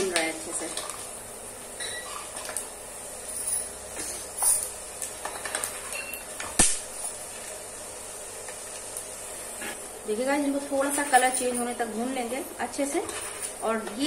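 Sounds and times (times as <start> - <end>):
peanuts sizzling in hot oil: 0.0 - 14.0
crackles and pops: 6.4 - 7.6.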